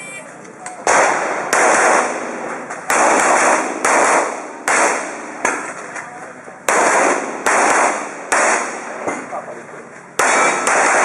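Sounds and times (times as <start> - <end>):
pistol shots: 0.8 - 5.8, 6.7 - 9.3, 10.2 - 11.0.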